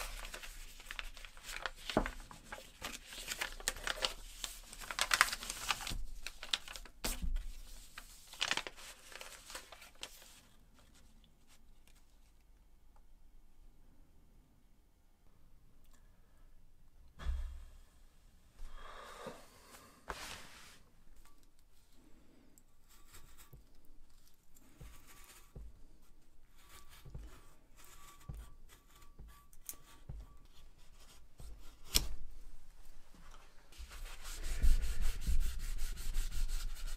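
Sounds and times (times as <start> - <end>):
paper crinkling and rustling: 0.0 - 12.4.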